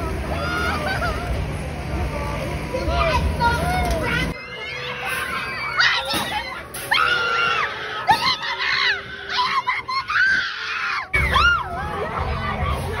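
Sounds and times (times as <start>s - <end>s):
young people screaming: 4.8s - 13.0s.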